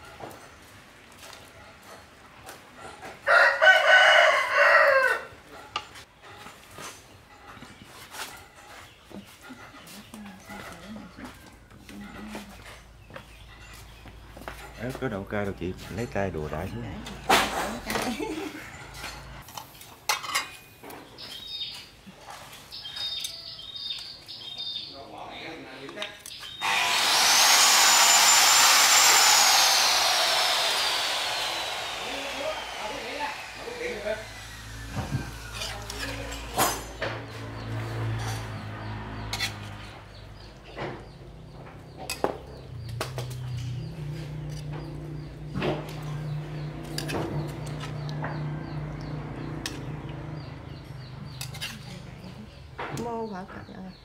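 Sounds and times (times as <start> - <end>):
birds chirping: 7.3 - 19.4, 20.8 - 26.9, 29.9 - 54.0
metal ladle scraping wok: 39.2 - 39.9, 49.6 - 52.2
metal spoon scraping pan and plates: 39.3 - 39.9, 51.3 - 52.2.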